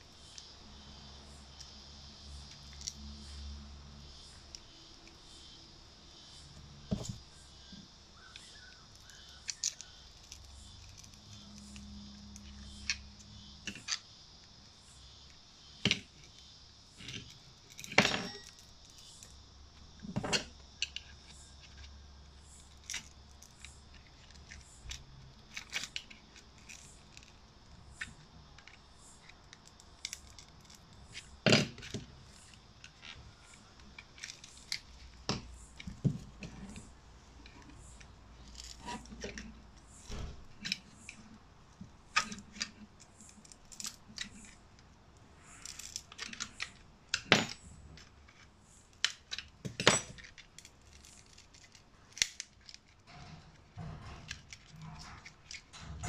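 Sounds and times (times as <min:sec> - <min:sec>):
metal tool scraping plastic: 0:38.4 - 0:41.0.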